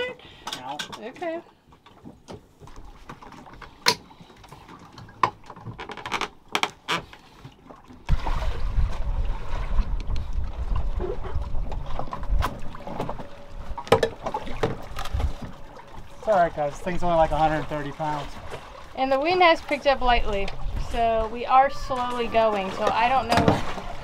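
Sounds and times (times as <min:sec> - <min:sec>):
wind buffeting microphone: 0:08.1 - 0:17.4, 0:19.9 - 0:24.0.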